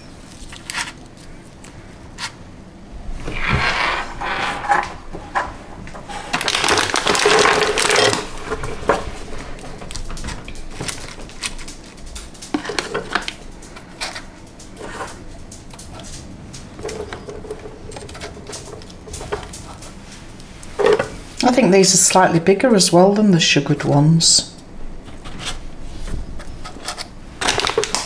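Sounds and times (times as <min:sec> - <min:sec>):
plastic and foil wrappers rustling: 0:00.0 - 0:02.4, 0:05.9 - 0:22.2, 0:25.0 - 0:28.0.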